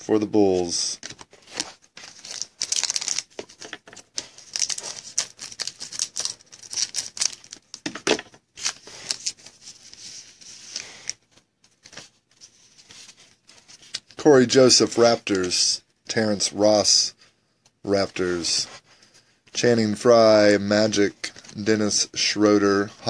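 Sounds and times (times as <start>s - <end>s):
foil wrapper crinkling and tearing: 1.5s - 7.9s, 8.6s - 9.5s.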